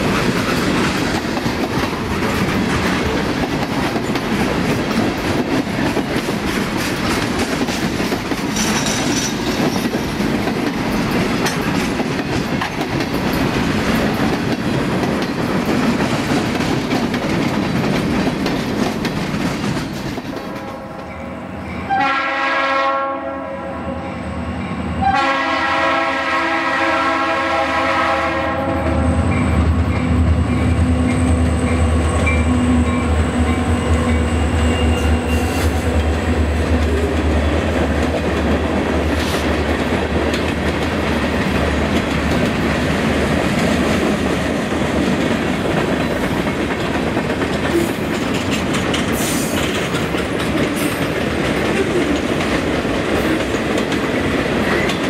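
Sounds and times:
train wheels clattering on rails: 0:00.0 - 0:21.9, 0:27.0 - 0:55.0
locomotive air horn: 0:21.9 - 0:24.0, 0:25.0 - 0:29.2.

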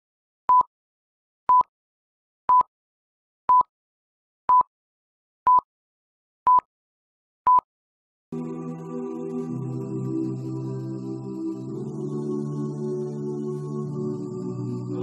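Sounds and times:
music: 0:08.3 - 0:15.0.

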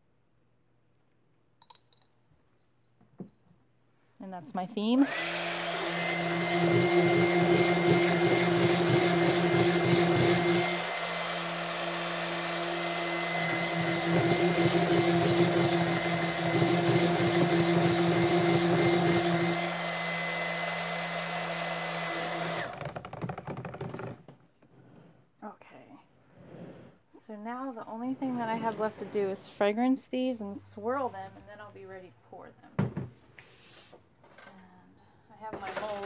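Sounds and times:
stick blender churning batter: 0:05.0 - 0:24.1.

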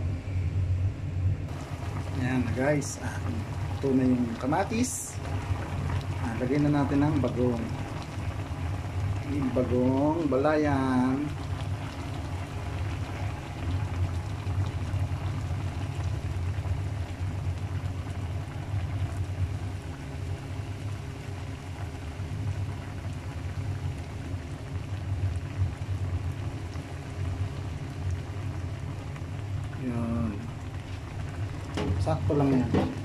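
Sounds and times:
broth boiling and bubbling: 0:00.0 - 0:33.0.

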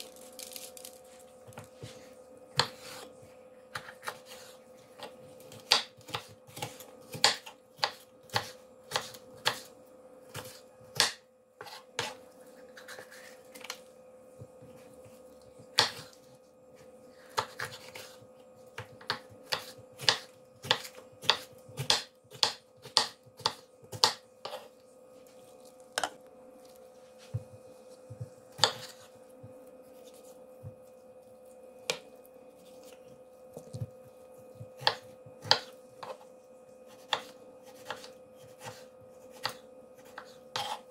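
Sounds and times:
faint steady hum: 0:00.0 - 0:40.9
knife chopping on wooden board: 0:02.6 - 0:03.1, 0:03.7 - 0:09.7, 0:10.3 - 0:12.2, 0:15.7 - 0:16.2, 0:18.8 - 0:24.7, 0:27.3 - 0:29.6, 0:33.6 - 0:36.2, 0:36.9 - 0:40.8.

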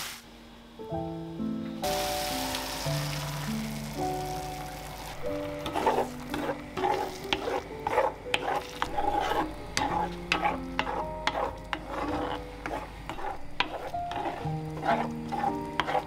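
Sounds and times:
light sizzle: 0:00.0 - 0:16.0
wooden spatula scraping metal pan: 0:05.0 - 0:16.0.

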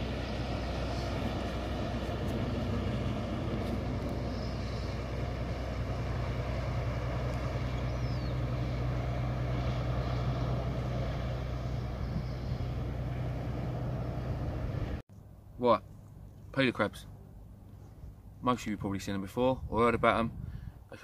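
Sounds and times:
motor boat engine drone: 0:00.0 - 0:15.0.

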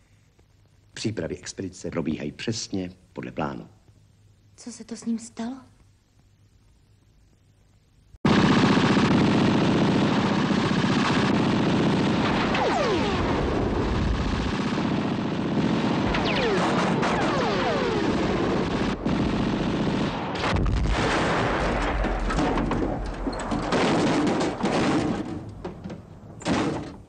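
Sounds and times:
machine-gun bursts and shots: 0:08.3 - 0:25.3
sharp blasts: 0:08.3 - 0:25.4.

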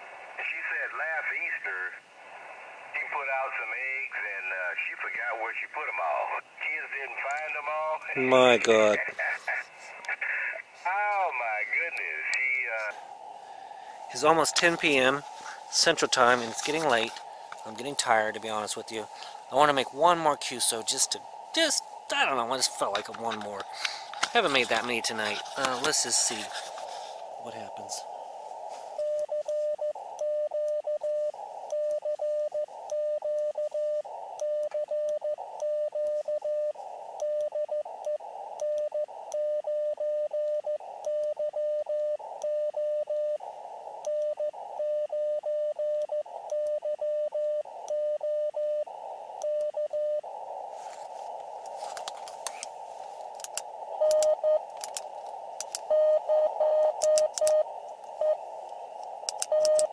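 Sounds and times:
radio receiver hiss: 0:00.0 - 0:59.9
morse code beeps: 0:29.0 - 0:43.4, 0:44.0 - 0:50.2, 0:53.9 - 0:54.7, 0:55.8 - 0:58.4, 0:59.4 - 0:59.9
sharp clicks: 0:51.3 - 0:55.9, 0:56.8 - 0:59.9.

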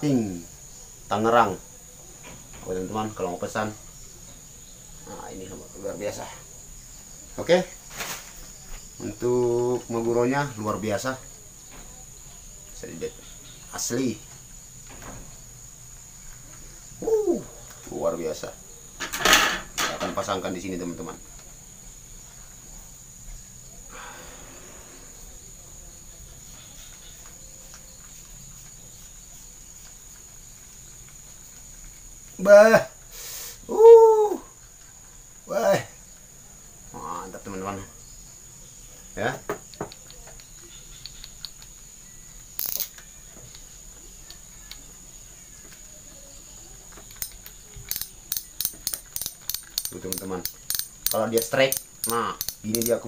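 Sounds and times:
short loud rustle: 0:07.9 - 0:08.4
fishing reel clicks and rustles: 0:47.0 - 0:53.0.

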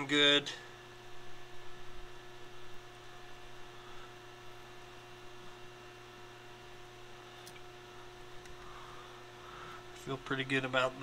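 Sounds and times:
low electrical hum: 0:00.0 - 0:11.0
small click: 0:07.4 - 0:07.7.

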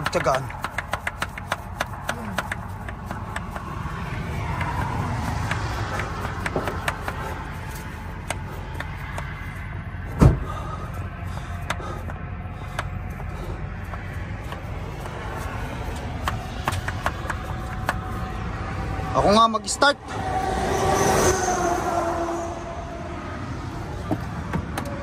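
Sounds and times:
steady low rumble: 0:00.0 - 0:20.6, 0:22.4 - 0:25.0
loud thump: 0:10.2 - 0:10.5.

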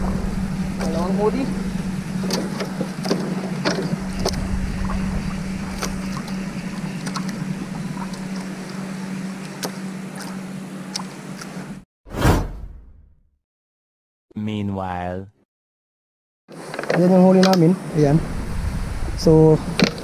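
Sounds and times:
wind on microphone: 0:00.0 - 0:02.4, 0:03.8 - 0:08.4, 0:18.0 - 0:20.0
steady low hum: 0:00.0 - 0:11.8
water lapping at hull: 0:00.0 - 0:11.8.

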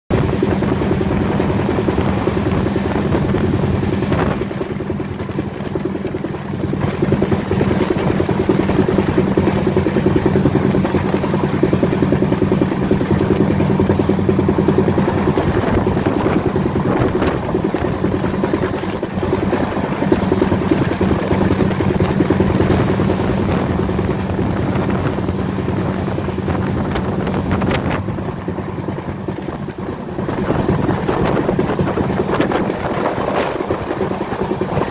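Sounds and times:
rushing air: 0:00.1 - 0:05.2, 0:10.9 - 0:33.6
train wheels rumbling on rails: 0:00.1 - 0:34.9.

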